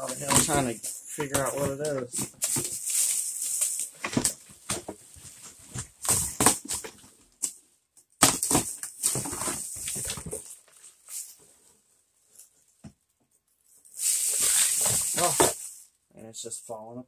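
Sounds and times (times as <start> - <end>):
plastic wrapping crinkling: 13.9 - 15.8
cardboard boxes scraping: 14.2 - 15.7.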